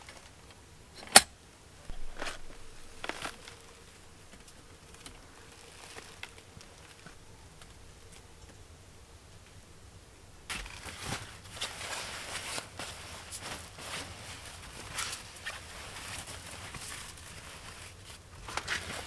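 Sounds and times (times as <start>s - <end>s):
lantern click: 1.0s - 1.3s
rustling scrapes of lantern: 1.9s - 7.2s, 10.5s - 19.0s.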